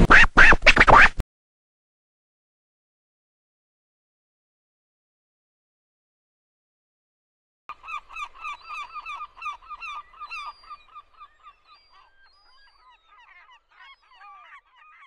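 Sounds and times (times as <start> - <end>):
birds honking: 7.7 - 15.0.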